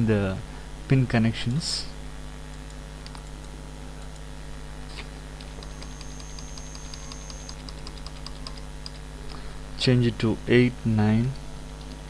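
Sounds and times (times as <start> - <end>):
electrical hum: 0.0 - 12.0
keyboard keys clicking: 5.4 - 9.0.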